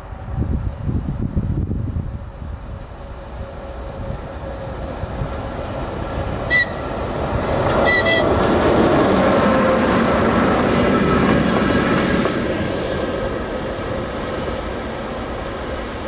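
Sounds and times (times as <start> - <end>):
train wheels rumbling on rail: 0.0 - 16.0
high-pitched locomotive toots: 6.4 - 7.0, 7.7 - 8.5.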